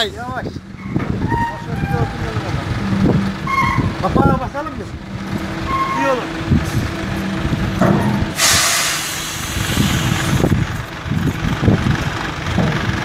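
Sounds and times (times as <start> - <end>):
diesel truck engine running: 0.0 - 13.0
loud air hiss: 8.3 - 10.5.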